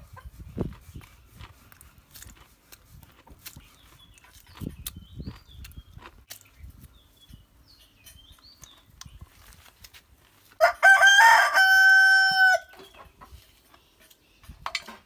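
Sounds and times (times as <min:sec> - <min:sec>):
rooster crowing: 0:10.6 - 0:12.8.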